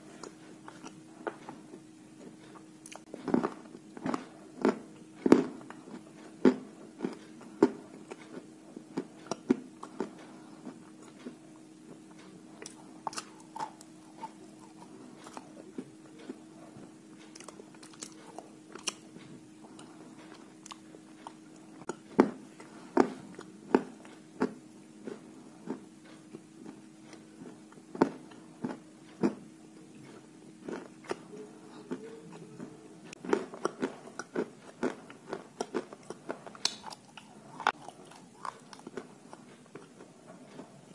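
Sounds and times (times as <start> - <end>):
chalk crunching while chewed: 2.2 - 29.4, 33.1 - 40.7.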